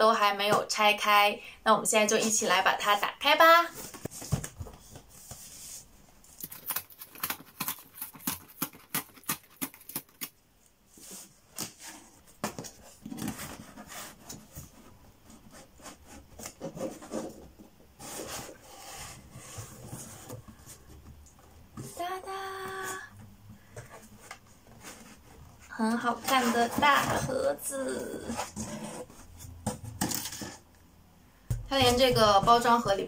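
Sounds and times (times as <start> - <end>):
packing tape rasping: 6.3 - 10.4
cardboard rubbing and scraping: 11.0 - 20.9, 23.9 - 27.5, 28.1 - 30.6.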